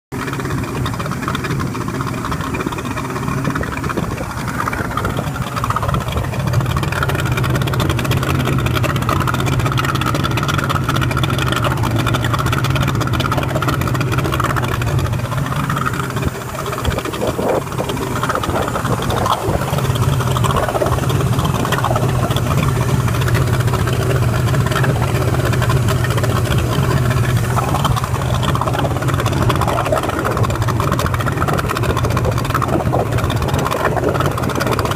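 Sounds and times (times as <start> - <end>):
outboard motor running: 0.1 - 34.9.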